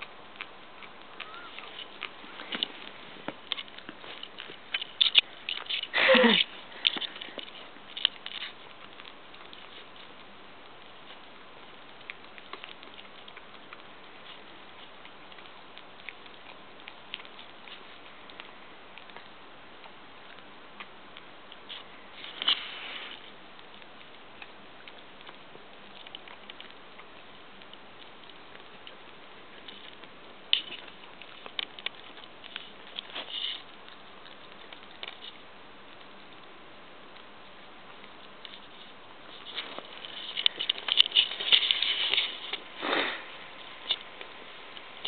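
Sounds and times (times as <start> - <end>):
dog chewing a bone: 0.0 - 45.0
dog sniffing: 38.2 - 44.0.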